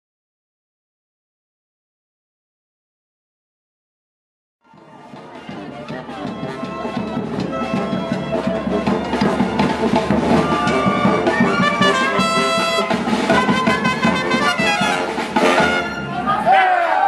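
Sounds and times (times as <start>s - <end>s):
bass drum beat: 4.7s - 16.1s
trumpets and trombones playing: 6.8s - 17.0s.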